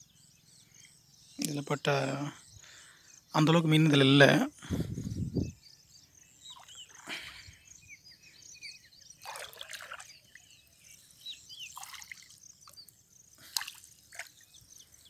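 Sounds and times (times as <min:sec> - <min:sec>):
water dripping and trickling: 0:09.2 - 0:10.5, 0:11.6 - 0:15.0
water splashes: 0:09.2 - 0:10.5, 0:11.6 - 0:14.6.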